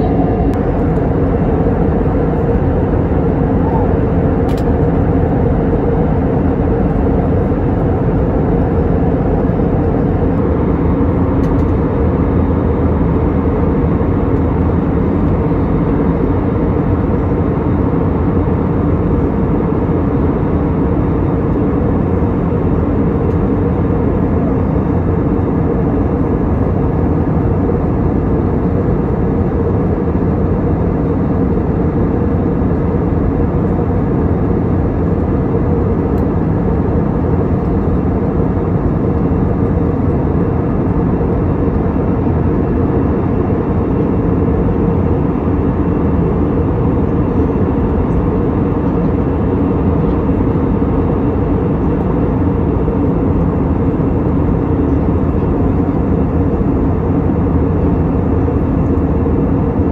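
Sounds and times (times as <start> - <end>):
airflow and engine noise: 0.0 - 59.9
steady low hum: 0.0 - 59.9.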